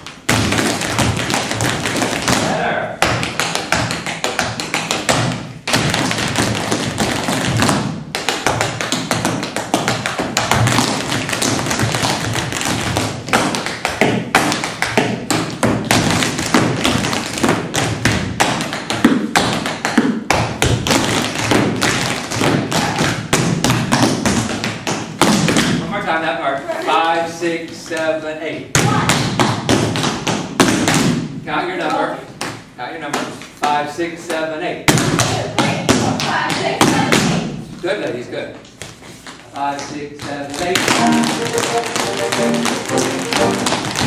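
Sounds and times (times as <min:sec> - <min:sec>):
tap shoes on wooden floor: 0:00.0 - 0:25.8, 0:34.9 - 0:37.5, 0:38.7 - 0:44.0.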